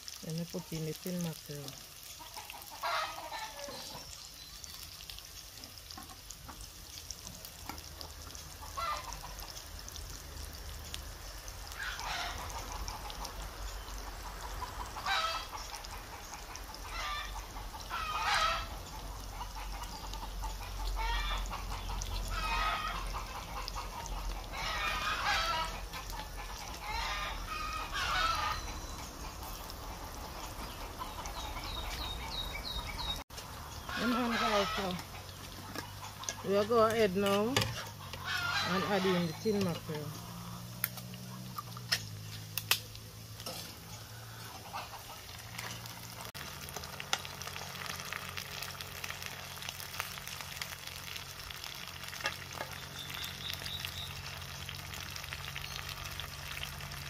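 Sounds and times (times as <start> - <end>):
chickens clucking: 2.2 - 4.2, 7.6 - 9.8, 11.7 - 42.4, 43.5 - 46.3
rooster crowing: 22.3 - 23.1, 26.8 - 28.9.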